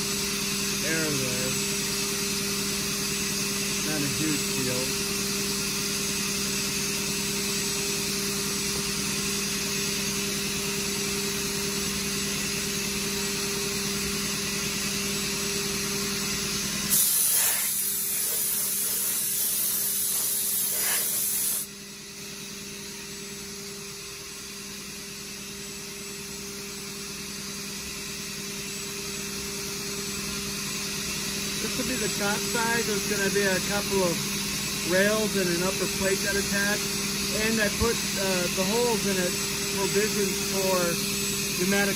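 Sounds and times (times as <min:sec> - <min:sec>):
milling machine humming: 0:00.0 - 0:24.8, 0:25.9 - 0:41.9
compressed air blow gun blasting: 0:16.6 - 0:21.7, 0:31.6 - 0:41.9.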